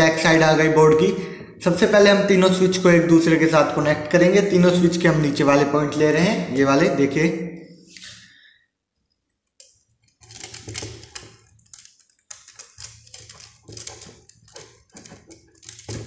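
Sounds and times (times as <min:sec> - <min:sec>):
small clicks and scraping of wire: 0:09.0 - 0:16.0.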